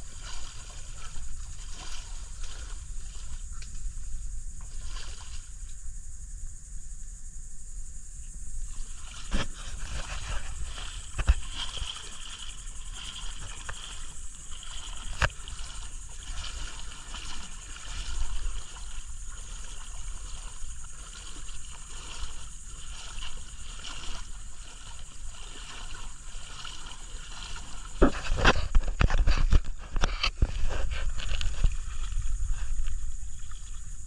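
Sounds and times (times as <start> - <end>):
water lapping around kayak: 0.0 - 34.0.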